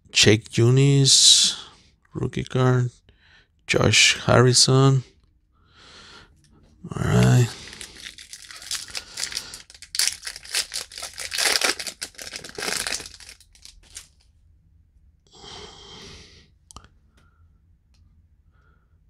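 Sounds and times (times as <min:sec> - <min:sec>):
foil wrapper tearing and crinkling: 0:07.3 - 0:14.2.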